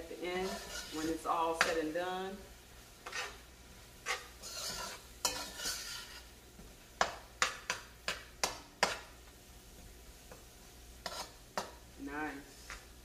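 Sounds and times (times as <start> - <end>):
metal spoon scraping a pot: 0.3 - 1.3, 3.0 - 3.4, 4.0 - 6.3, 11.0 - 11.7.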